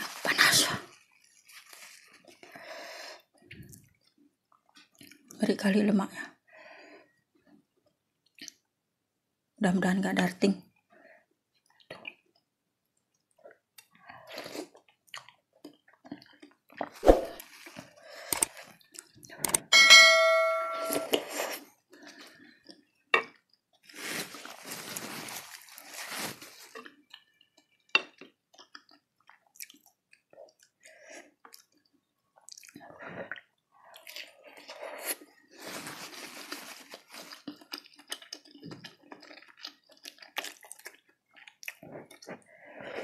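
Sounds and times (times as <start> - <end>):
wet chewing: 26.7 - 35.4, 36.4 - 42.4.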